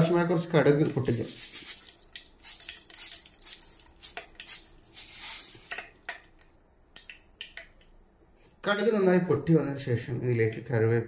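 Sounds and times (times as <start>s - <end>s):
oil sizzling: 1.0s - 6.3s
seeds crackling in hot oil: 1.3s - 6.4s.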